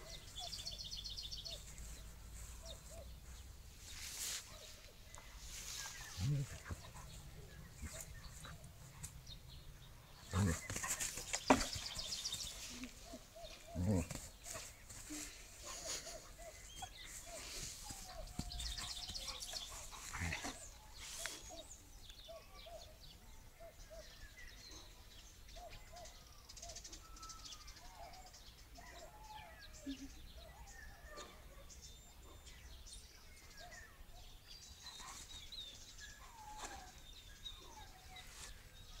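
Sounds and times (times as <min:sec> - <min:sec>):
rustling: 0:01.5 - 0:09.2.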